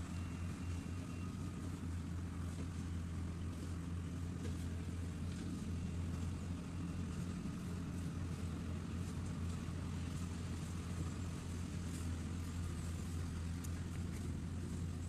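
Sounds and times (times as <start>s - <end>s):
harvester diesel engine droning: 0.0s - 15.0s.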